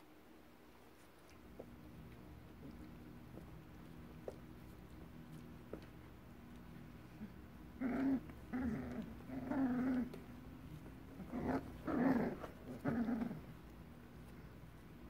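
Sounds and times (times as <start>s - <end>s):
puppies growling: 7.0s - 14.4s.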